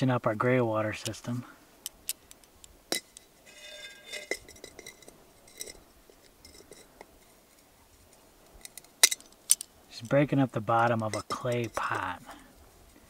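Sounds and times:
ringing clink: 2.9s - 5.8s.

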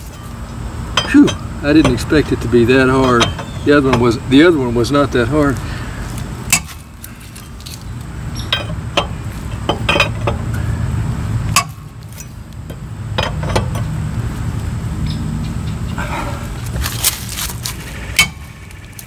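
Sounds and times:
lug wrench clinking on nuts: 0.0s - 4.6s, 6.5s - 10.8s, 11.4s - 14.0s.

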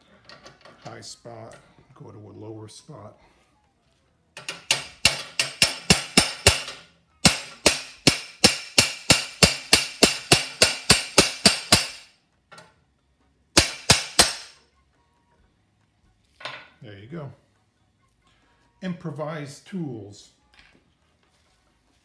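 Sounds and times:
hammer striking steel rod: 4.4s - 12.1s, 13.6s - 14.6s.

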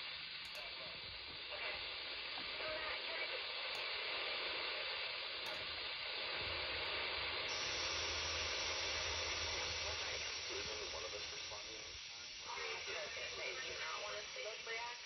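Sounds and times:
faint radio audio: 0.0s - 15.0s
radio receiver hiss: 0.0s - 15.0s.

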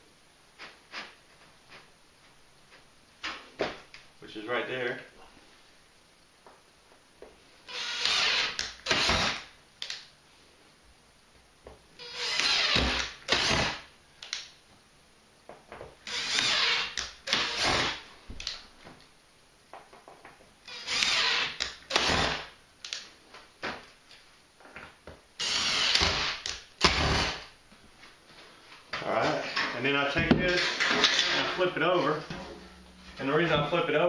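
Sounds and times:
cordless drill driving screw into metal: 12.0s - 13.8s, 16.1s - 18.0s, 20.7s - 22.5s, 25.4s - 27.4s.

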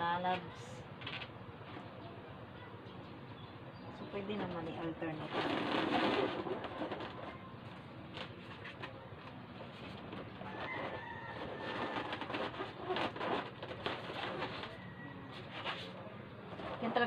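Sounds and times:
balloons squeaking and rubbing: 4.8s - 9.0s, 9.6s - 17.0s.

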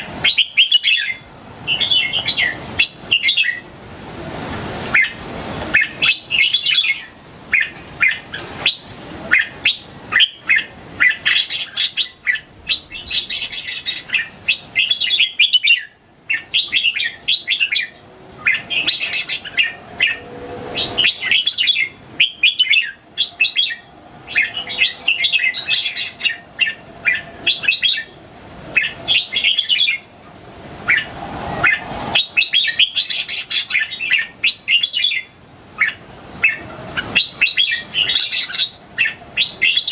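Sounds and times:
bird singing whistled phrases: 5.8s - 28.1s.

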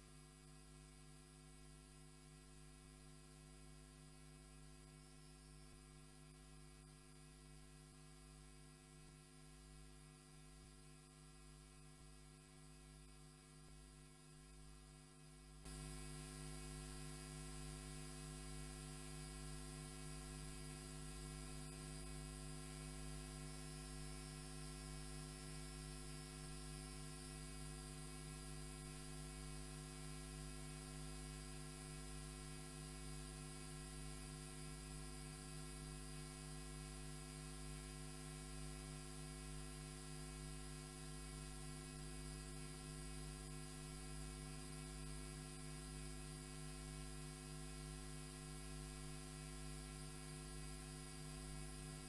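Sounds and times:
faint electrical mains hum: 0.0s - 52.0s.

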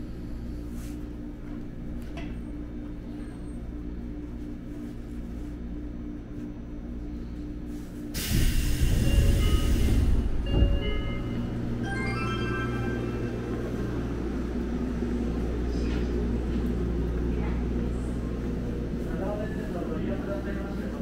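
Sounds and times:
electric train humming: 0.0s - 21.0s
train doors opening with air rush: 7.7s - 11.8s.

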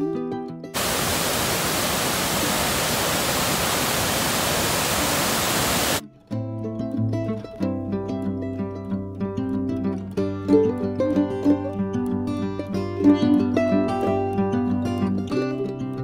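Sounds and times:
waterfall roaring: 0.8s - 6.0s
plucked string music: 6.0s - 16.0s.

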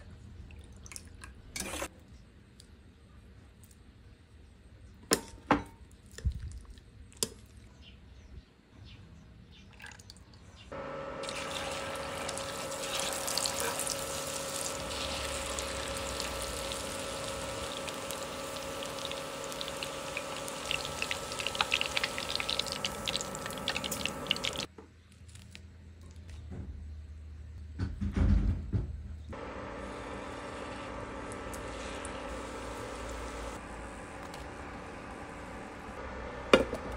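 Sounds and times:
steady hum: 10.8s - 24.7s
meat deep-frying in oil: 11.1s - 24.7s.

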